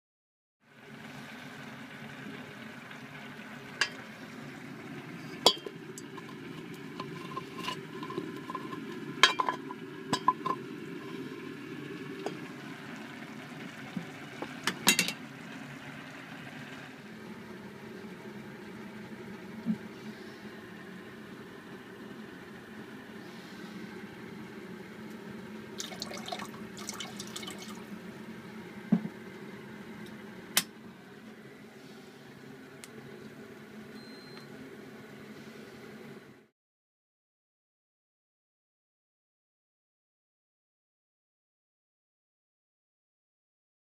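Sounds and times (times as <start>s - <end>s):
metal pot and utensils clinking: 5.4s - 6.4s, 7.0s - 10.6s, 14.7s - 15.2s.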